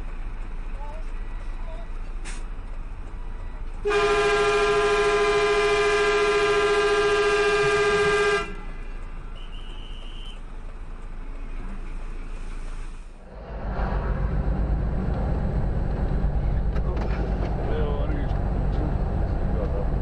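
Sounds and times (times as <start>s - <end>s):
engine drone: 0.0s - 20.0s
vehicle horn blast: 3.8s - 8.7s, 9.4s - 10.4s.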